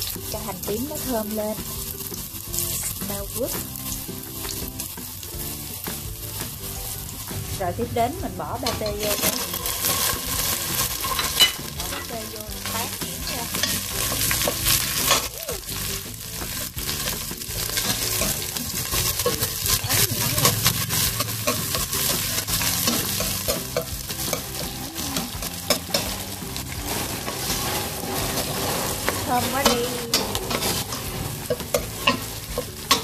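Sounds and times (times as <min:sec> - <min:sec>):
food sizzling in hot oil: 0:00.0 - 0:33.0
metal spoon scraping a pot: 0:08.6 - 0:15.3, 0:16.9 - 0:33.0.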